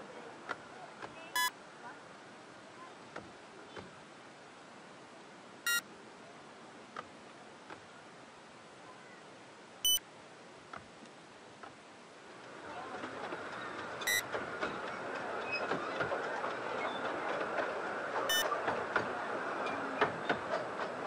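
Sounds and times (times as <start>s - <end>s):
steady low hiss: 0.0s - 15.6s
high-pitched squeaks: 14.0s - 14.2s.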